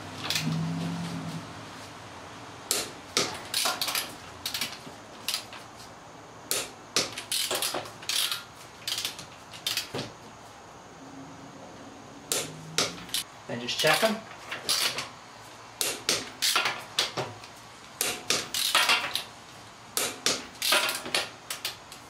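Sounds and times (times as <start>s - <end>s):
torque wrench ratchet clicks: 7.3s - 9.9s.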